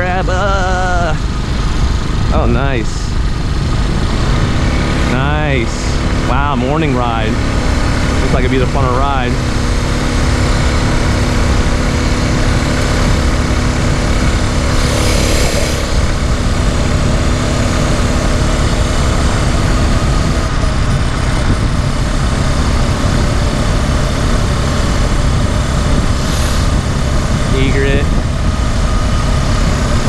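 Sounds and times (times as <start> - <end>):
small engine running: 0.0 - 30.0
wind buffeting microphone: 9.2 - 30.0.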